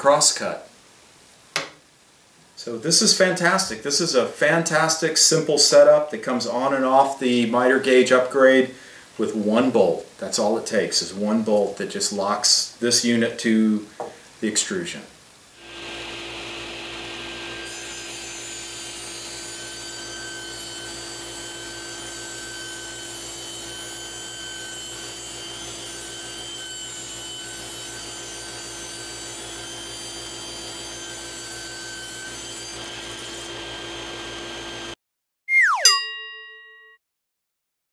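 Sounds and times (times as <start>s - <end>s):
table saw ripping board: 15.6s - 34.7s.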